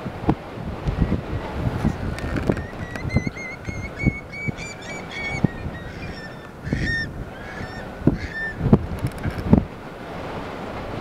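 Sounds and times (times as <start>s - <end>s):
wind buffeting microphone: 0.0s - 11.0s
curlews calling: 2.2s - 8.6s.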